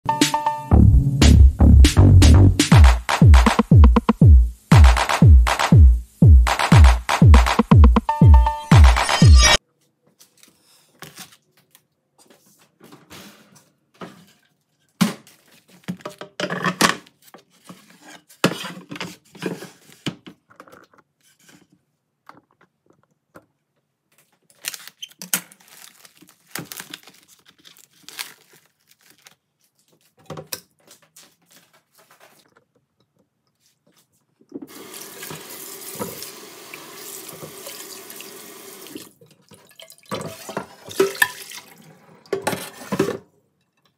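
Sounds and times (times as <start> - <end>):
water running into sink: 34.7 - 41.8.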